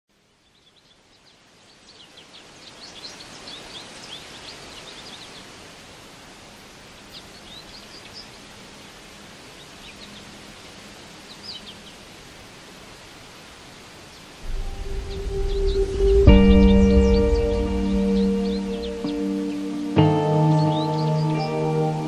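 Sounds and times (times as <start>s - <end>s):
steady hiss: 0.1s - 22.0s
small birds chirping: 0.2s - 22.0s
faint low steady tone: 14.4s - 20.8s.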